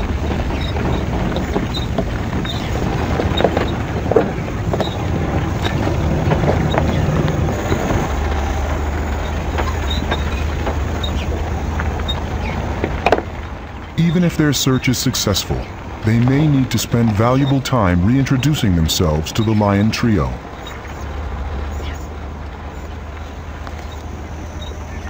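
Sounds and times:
vehicle knocking over bumps: 0.0s - 19.4s
low engine rumble: 0.0s - 25.0s
tyres crunching over stones: 0.0s - 25.0s.

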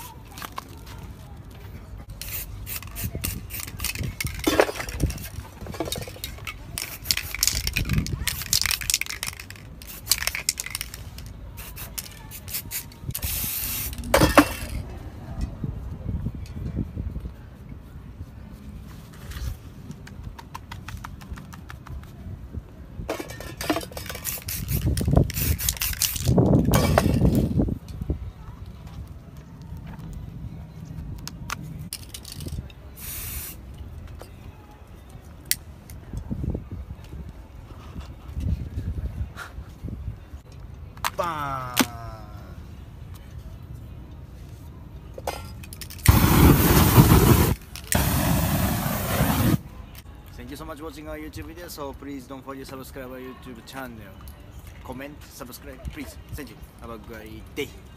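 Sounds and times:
spray paint can hissing: 2.2s - 5.4s, 6.4s - 14.8s, 24.0s - 27.4s, 33.0s - 33.6s, 45.9s - 49.6s.

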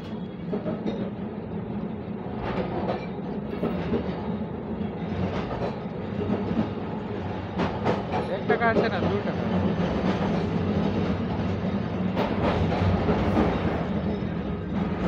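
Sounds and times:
tram rumbling on track: 0.0s - 15.0s.

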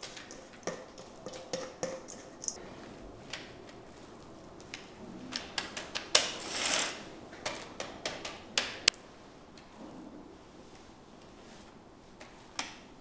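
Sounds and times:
spatula tapping dough: 0.0s - 2.6s.

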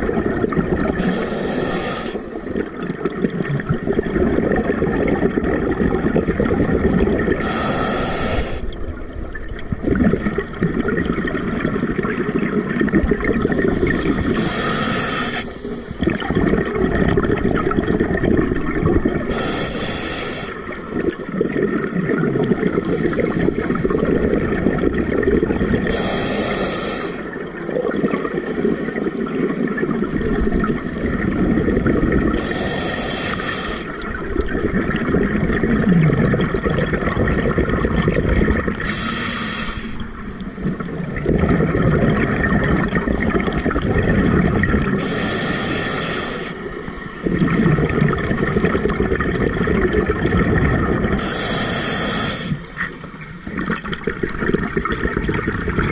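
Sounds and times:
exhaled bubbles streaming: 0.0s - 7.8s, 8.4s - 55.9s
regulator inhalation hiss: 1.0s - 2.5s, 7.4s - 8.7s, 14.3s - 16.0s, 19.3s - 20.7s, 25.9s - 27.4s, 32.4s - 34.1s, 38.8s - 40.0s, 45.0s - 47.2s, 51.2s - 52.8s.

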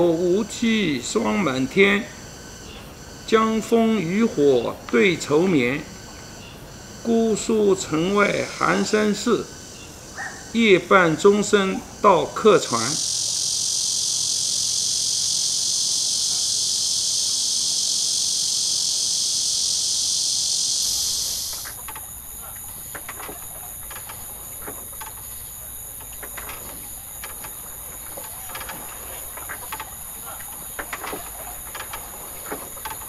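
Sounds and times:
insect chorus shrilling: 0.0s - 33.0s
soft scattered knocks: 21.5s - 33.0s.

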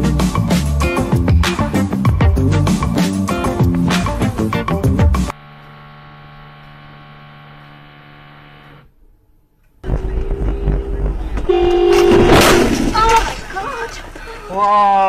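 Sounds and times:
steady low hum: 5.3s - 13.0s
traffic noise: 9.8s - 15.0s
car horn: 9.9s - 12.7s
car collision crash: 9.9s - 13.6s.

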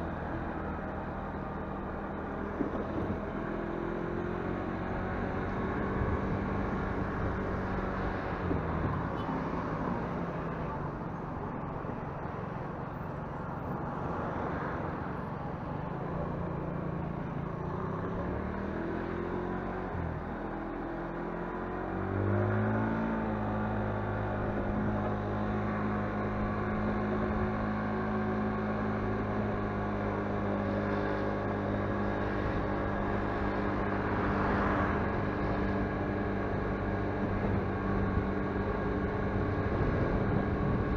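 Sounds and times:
motorcycle engine running: 0.0s - 9.3s, 14.8s - 40.9s
wind noise on microphone: 37.3s - 40.9s.

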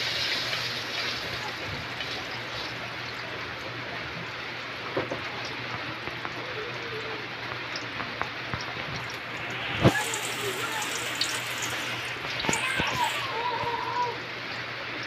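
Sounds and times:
food sizzling in hot oil: 0.0s - 3.2s, 7.4s - 14.2s
oil popping and crackling: 0.0s - 14.7s.

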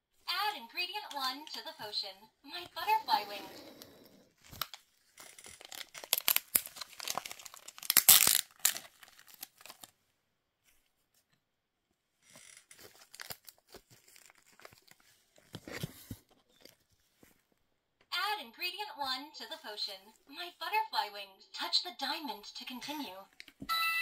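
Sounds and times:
packet crinkling and tearing: 4.4s - 10.0s, 12.7s - 15.8s.

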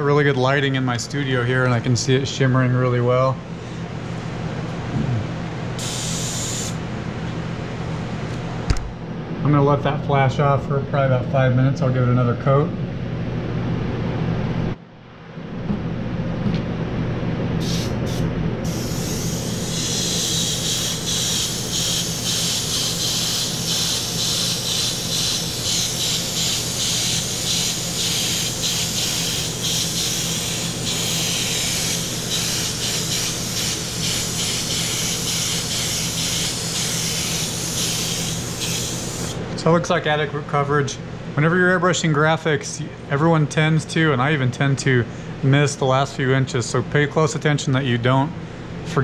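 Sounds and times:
short puffs of air: 5.2s - 6.8s, 17.6s - 23.0s
airbrush spraying hiss: 5.8s - 6.8s, 17.6s - 39.4s.

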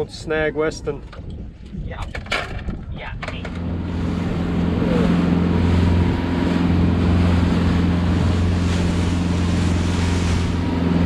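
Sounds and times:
wind buffeting microphone: 0.0s - 11.0s
outboard engine drone: 3.1s - 11.0s
water rushing from wake: 3.6s - 11.0s.

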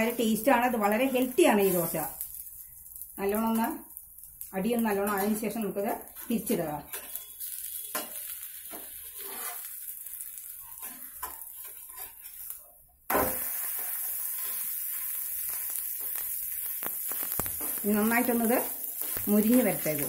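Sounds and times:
batter sizzling: 0.0s - 20.0s
spatula scraping on griddle: 5.0s - 12.6s, 13.2s - 20.0s.

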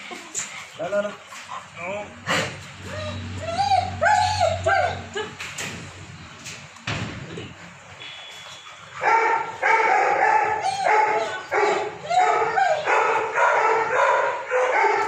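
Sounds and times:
dog whining barks: 2.8s - 5.3s, 8.9s - 15.0s.

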